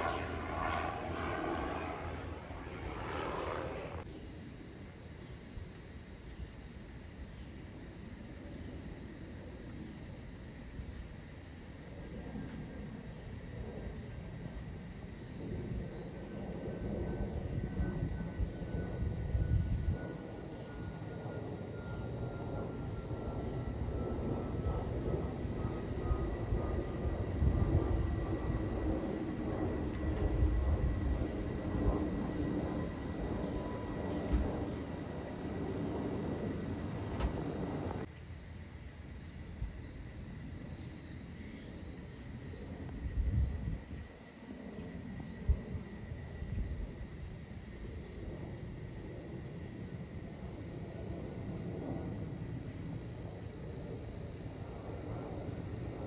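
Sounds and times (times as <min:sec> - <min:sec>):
faint jet whine falling in pitch: 0:00.0 - 0:04.1, 0:12.4 - 0:38.1, 0:38.9 - 0:56.0
jet airliner low rumble: 0:00.0 - 0:56.0.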